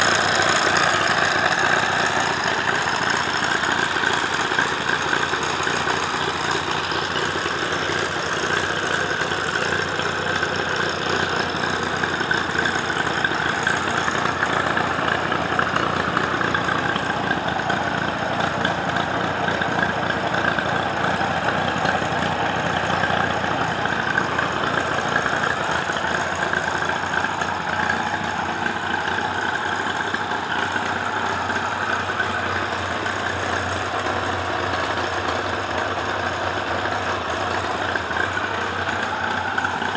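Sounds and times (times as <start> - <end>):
tractor engine idling: 0.0 - 39.9.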